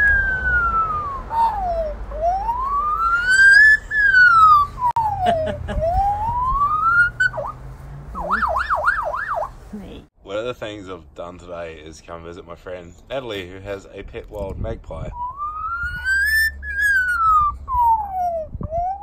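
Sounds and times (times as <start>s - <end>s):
magpie mimicking a siren: 0.0s - 7.6s, 8.2s - 9.6s, 15.2s - 19.0s.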